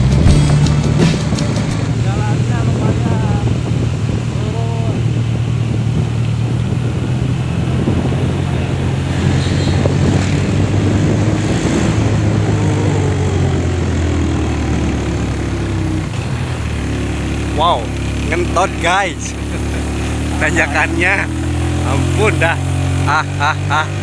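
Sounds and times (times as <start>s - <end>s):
wind noise on microphone: 0.0s - 17.1s
motorcycle engine running: 0.0s - 24.0s.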